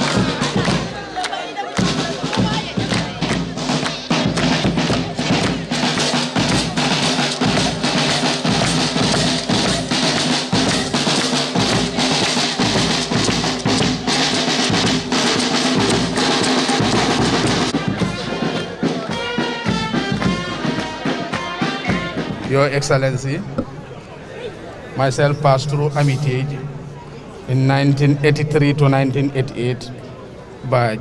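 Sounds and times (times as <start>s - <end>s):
voices singing: 0.0s - 19.4s
hand clapping: 0.0s - 22.6s
drumming: 0.0s - 23.9s.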